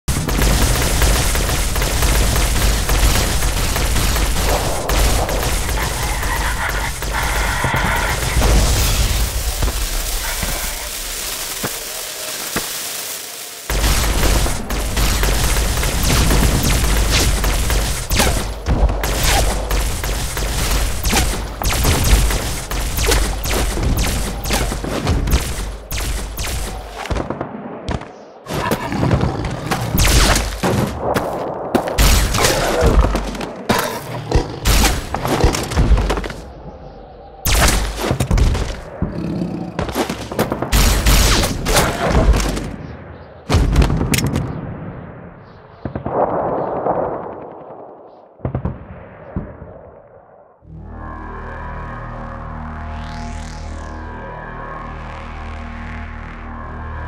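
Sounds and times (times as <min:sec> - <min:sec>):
gunfire: 0:00.1 - 0:09.0, 0:13.7 - 0:28.1.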